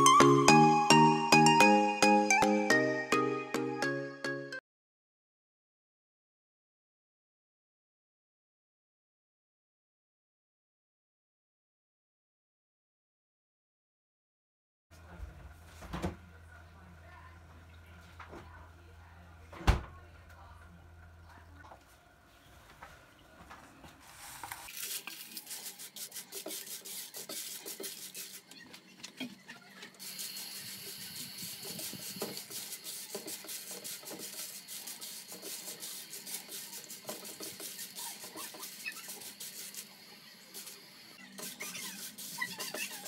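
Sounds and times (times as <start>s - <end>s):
dried chillies rustling in a pan: 24.2s - 28.5s.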